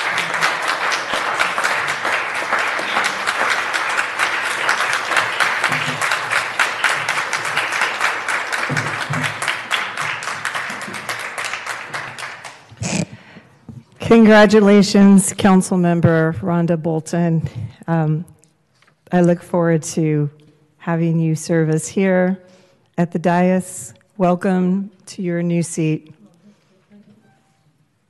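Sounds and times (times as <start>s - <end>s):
crowd clapping: 0.0s - 13.2s.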